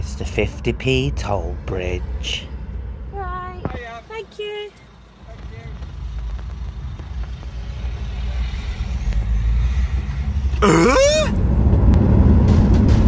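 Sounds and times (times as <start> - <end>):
car engine and road noise: 0.0 - 13.0.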